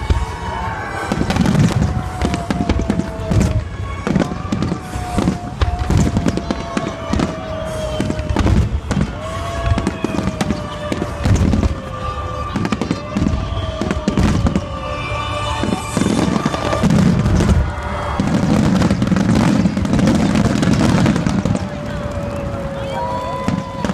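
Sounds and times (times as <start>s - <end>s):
fireworks booming and crackling: 0.0s - 23.9s.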